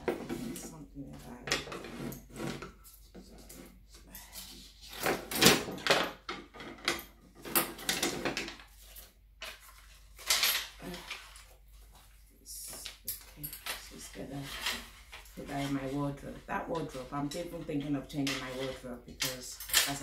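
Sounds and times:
clothes hangers clattering: 4.9 - 11.4, 12.7 - 20.0.

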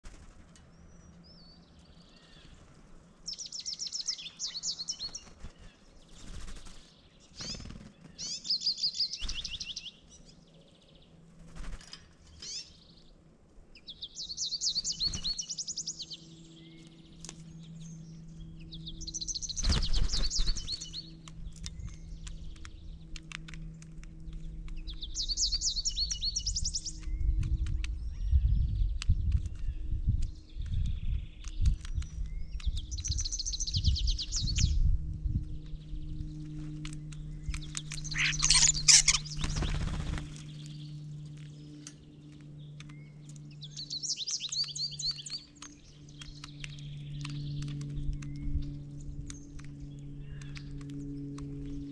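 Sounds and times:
faint low hum: 0.0 - 51.9
songbird high trill: 38.0 - 39.8.

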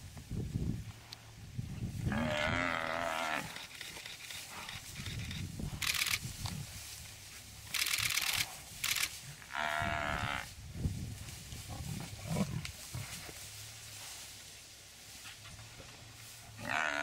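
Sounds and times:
buffalo distress bellow: 2.1 - 3.6, 9.5 - 10.5, 16.5 - 17.0.

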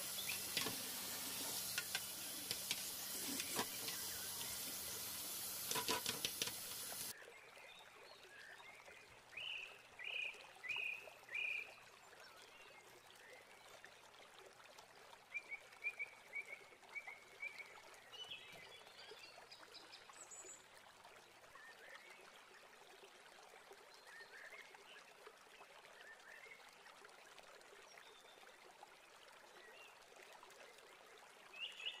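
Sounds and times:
low hiss: 0.0 - 7.1
tap water running onto mesh: 0.0 - 7.1.

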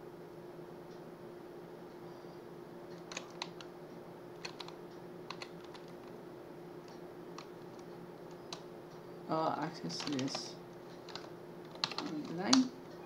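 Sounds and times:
faint electrical hum: 0.0 - 13.0
keyboard keystrokes: 3.0 - 3.7, 4.4 - 6.1, 9.8 - 12.8.

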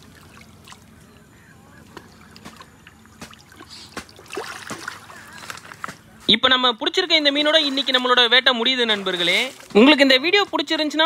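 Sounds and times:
water sloshing around wading person: 0.0 - 6.4, 7.2 - 11.0
sharp water drips: 1.9 - 5.3
water splash: 2.0 - 5.6, 7.5 - 10.0.

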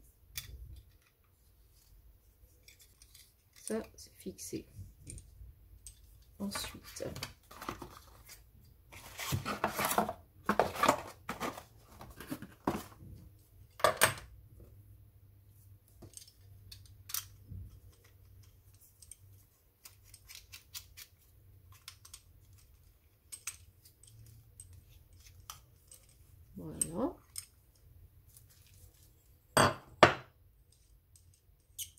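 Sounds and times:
plastic parts clicking: 16.0 - 26.2.

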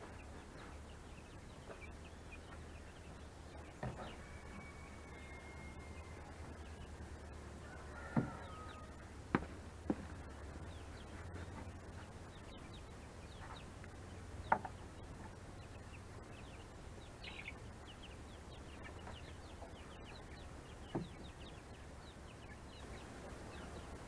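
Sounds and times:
chicks peeping: 0.0 - 24.0
knocks on wooden coop: 8.1 - 8.5, 9.3 - 10.1.

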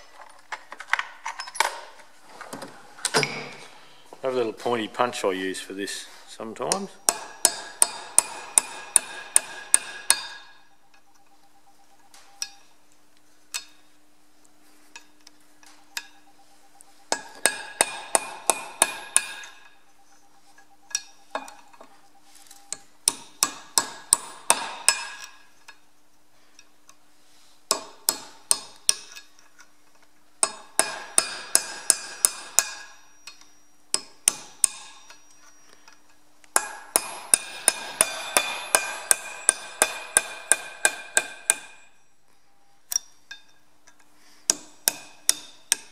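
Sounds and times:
hammer tapping metal punch: 6.7 - 10.7, 17.1 - 19.8, 20.9 - 21.9, 22.7 - 25.5, 27.7 - 29.3, 30.4 - 35.4, 36.5 - 42.0, 44.5 - 45.9.

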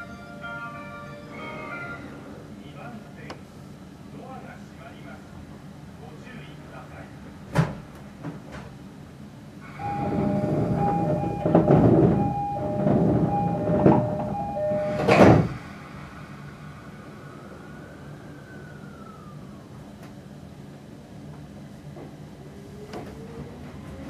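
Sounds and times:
train rumbling: 0.0 - 24.0
train doors shutting thud: 7.5 - 8.8, 9.7 - 15.8
two-tone door chime: 9.8 - 15.4.

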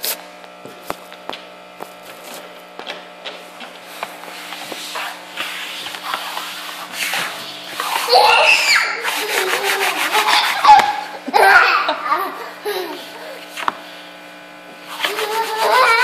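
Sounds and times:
toddler squealing and laughing: 7.8 - 12.0.

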